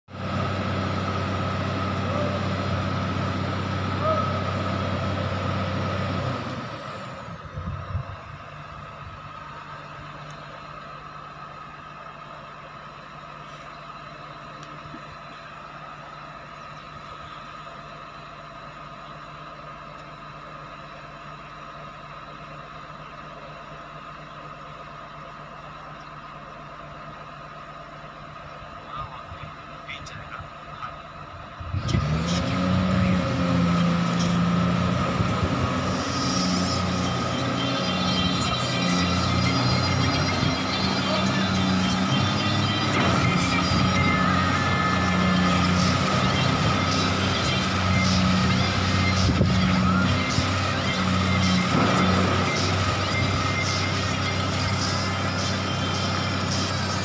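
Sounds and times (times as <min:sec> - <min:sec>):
excavator diesel engine running: 0:00.1 - 0:57.0
high whine: 0:25.6 - 0:57.0.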